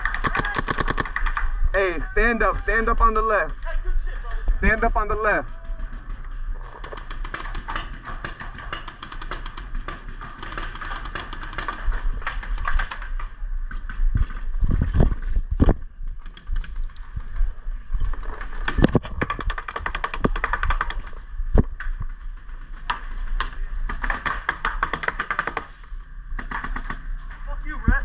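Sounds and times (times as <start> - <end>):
paintball markers firing: 0.0 - 1.5, 5.1 - 14.4, 18.2 - 21.2, 22.1 - 27.2.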